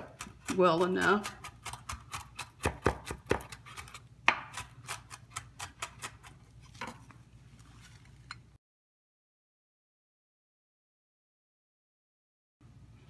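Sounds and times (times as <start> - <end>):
knife chopping on wooden board: 0.0 - 6.3.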